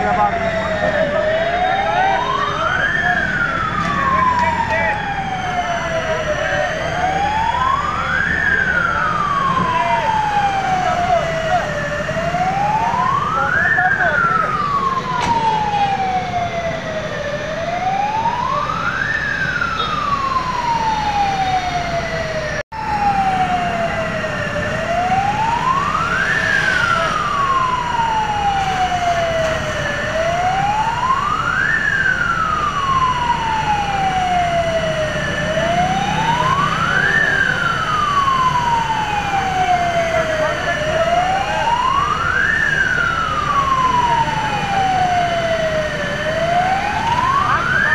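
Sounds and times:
fire engine siren wailing: 0.0s - 47.9s.

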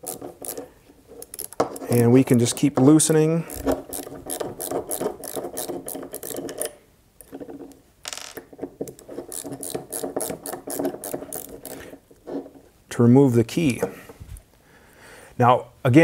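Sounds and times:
small metal clicks: 0.0s - 1.9s.

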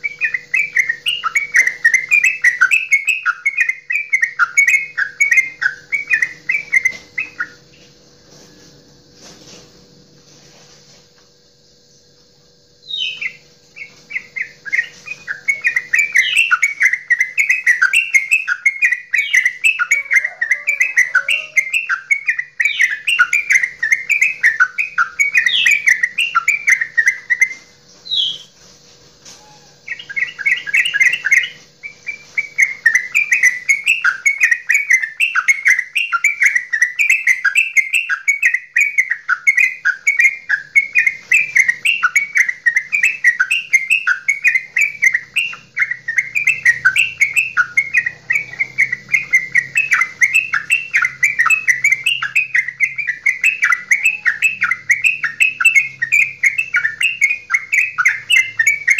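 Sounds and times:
bulbul singing bubbling chatter: 12.7s - 28.5s, 29.6s - 58.9s.

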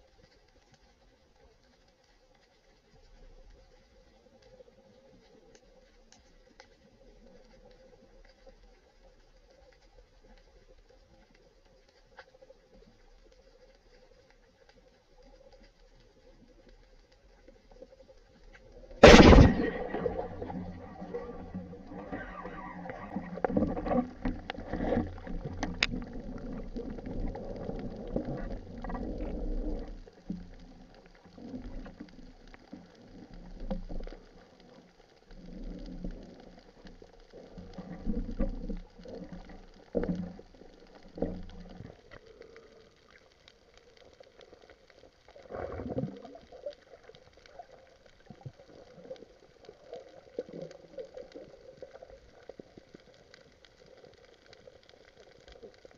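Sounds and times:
faint ticks: 0.0s - 19.1s, 19.9s - 55.9s
water rushing underwater: 16.2s - 55.9s.

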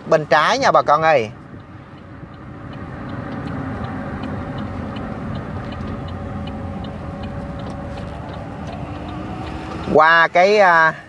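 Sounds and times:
vehicle engine and road noise: 0.0s - 11.0s
light high ticking: 0.2s - 11.0s.

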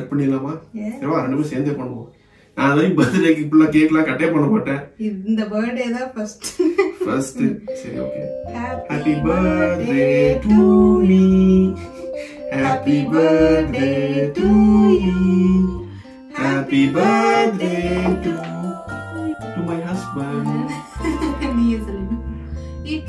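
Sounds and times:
song with guitar and singing: 8.6s - 19.0s.

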